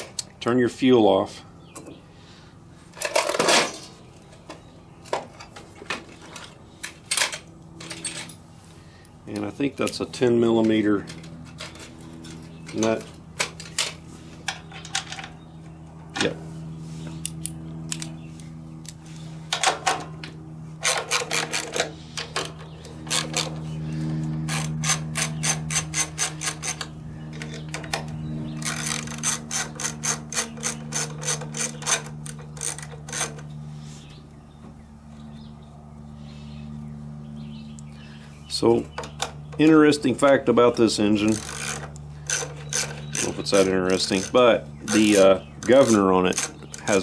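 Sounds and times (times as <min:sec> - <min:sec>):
steady low hum: 0:00.0 - 0:47.0.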